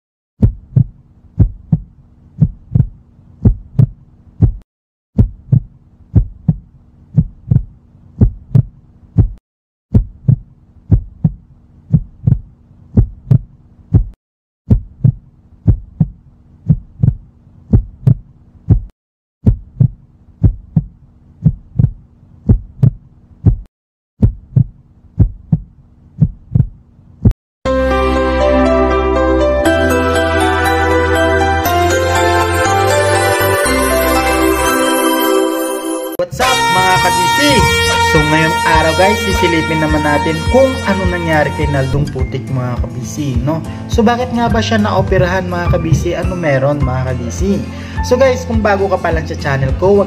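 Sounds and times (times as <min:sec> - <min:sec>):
heartbeat thumps: 0:00.4 - 0:04.6, 0:05.2 - 0:27.4, 0:44.9 - 0:46.3.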